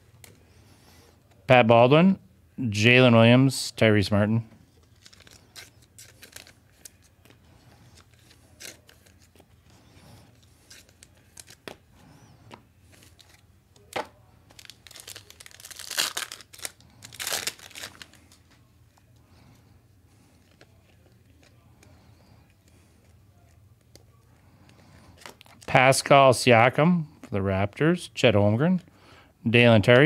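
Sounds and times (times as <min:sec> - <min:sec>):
cards being handled: 0:04.6 - 0:19.2, 0:20.2 - 0:25.7
wrapper tearing and crinkling: 0:04.8 - 0:07.2, 0:08.0 - 0:09.4, 0:10.6 - 0:11.8, 0:13.0 - 0:18.4.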